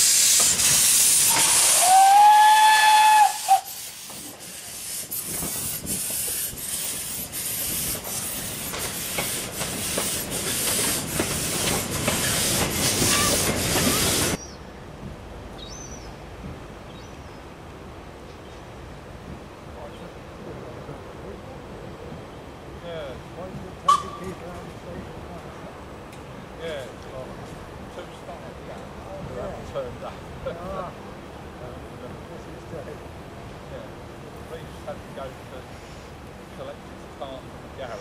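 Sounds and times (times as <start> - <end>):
steam whistle: 0.0 - 4.2
steam hissing: 0.0 - 14.4
steam engine chuffing: 3.1 - 14.4.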